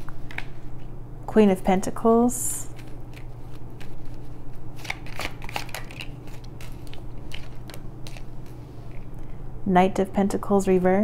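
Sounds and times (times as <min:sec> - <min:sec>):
cards being shuffled: 0:02.6 - 0:09.1.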